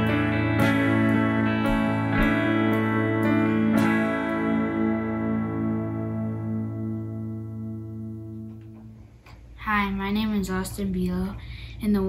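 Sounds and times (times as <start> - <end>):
pulsing guitar chord ringing: 0.0 - 9.0.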